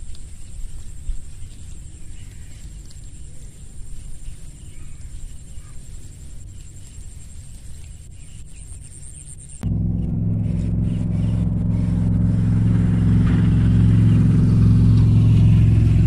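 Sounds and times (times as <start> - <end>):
high-pitched trill: 9.6 - 16.0.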